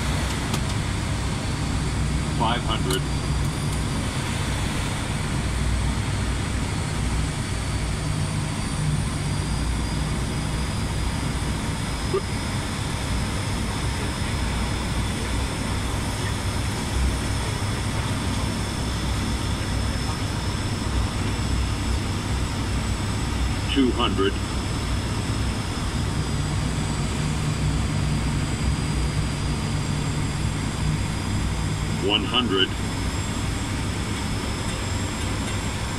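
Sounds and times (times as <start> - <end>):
turboprop engines droning: 0.0 - 35.9
airflow noise: 3.2 - 6.7.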